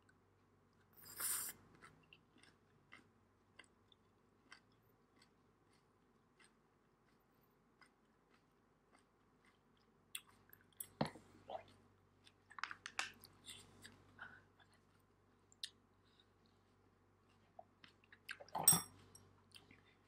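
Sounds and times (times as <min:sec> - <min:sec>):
mouth chewing noodles: 0:00.8 - 0:12.5
wet clicks and crunches: 0:12.4 - 0:13.4.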